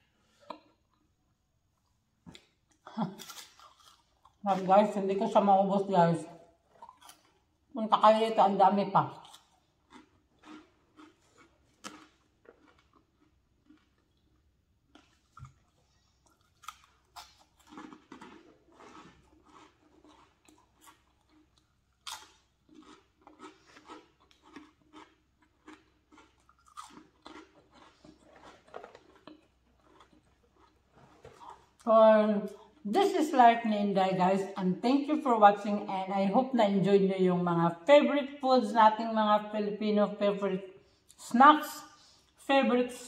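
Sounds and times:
person chewing crunchy chips: 1.8s - 4.8s, 6.6s - 7.6s, 9.1s - 31.9s, 32.5s - 32.9s.

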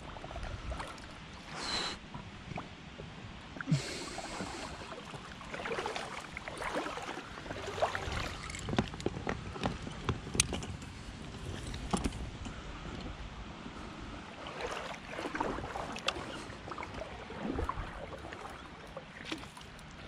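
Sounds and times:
water splashing around boat: 0.0s - 20.0s
clicks and knocks of gear: 8.3s - 13.1s.

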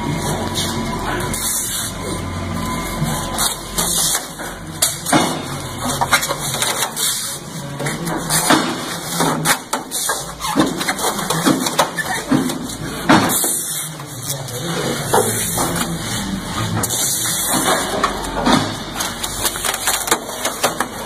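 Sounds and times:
low machine hum: 0.0s - 21.0s
knocks and clatter: 7.8s - 13.6s, 16.7s - 21.0s.

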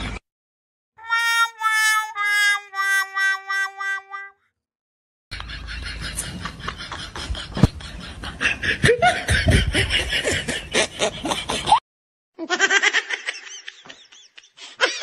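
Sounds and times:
laughter: 5.4s - 11.8s, 12.4s - 15.0s.

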